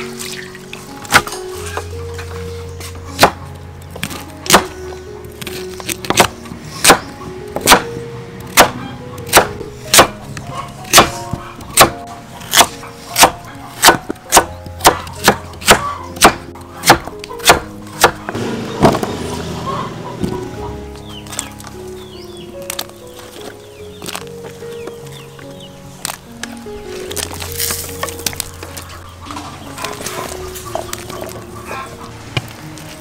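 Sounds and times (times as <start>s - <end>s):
knife chopping on wooden board: 4.0s - 4.7s, 6.0s - 7.8s, 8.5s - 10.2s, 10.9s - 11.2s, 11.8s - 19.1s.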